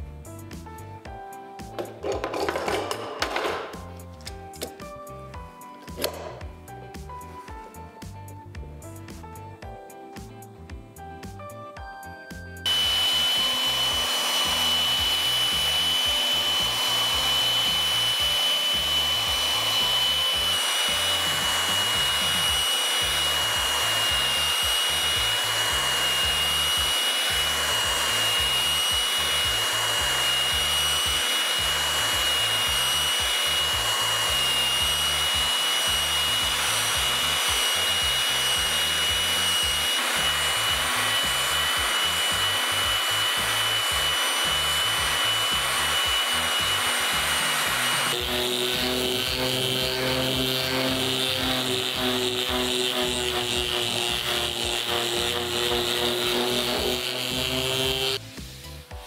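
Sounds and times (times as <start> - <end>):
belt sander on wood: 12.6 - 59.0.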